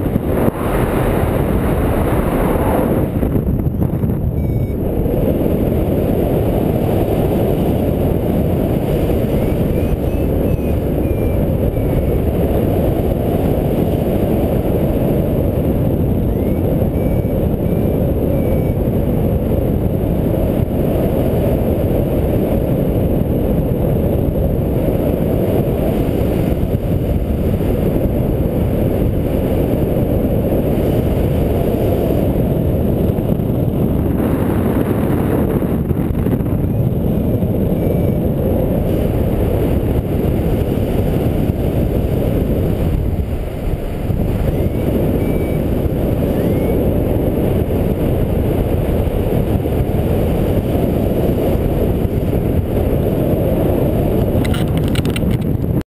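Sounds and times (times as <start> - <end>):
wind noise on microphone: 0.0 - 55.9
faint short high beeps: 4.3 - 4.8.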